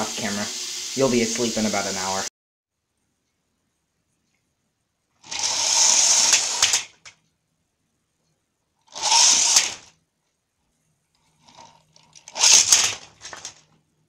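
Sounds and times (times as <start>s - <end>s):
toy train motor whirring: 5.2s - 7.1s, 8.8s - 10.0s, 11.3s - 13.7s.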